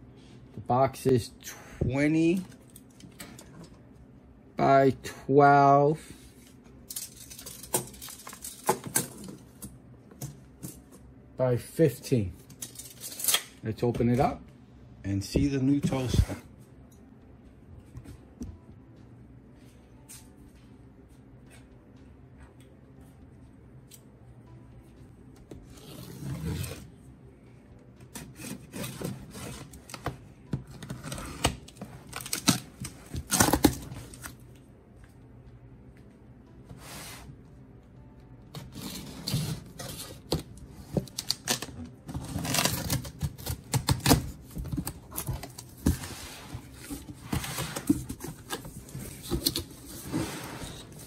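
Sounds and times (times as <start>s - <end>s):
packing tape slit with cutter: 30.8s - 34.3s, 41.0s - 45.6s.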